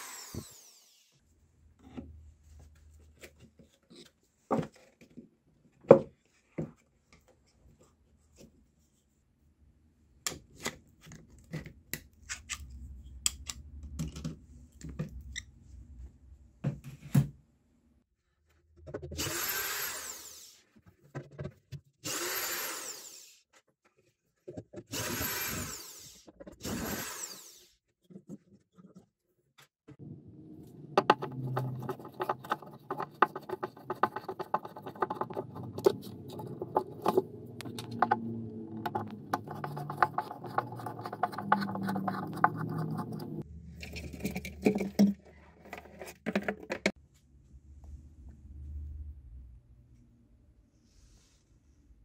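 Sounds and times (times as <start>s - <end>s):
small power tool whining: 0.0s - 1.2s, 22.0s - 23.4s, 24.9s - 27.7s.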